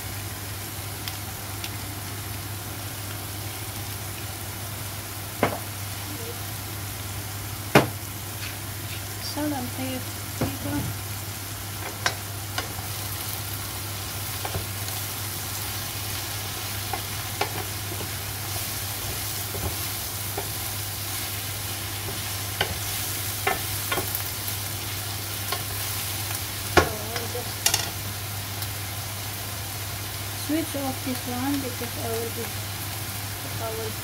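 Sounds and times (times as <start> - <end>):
vegetables sizzling in frying pan: 0.0 - 34.0
wooden spatula knocking pan: 7.7 - 8.0, 18.9 - 20.6, 22.0 - 24.2.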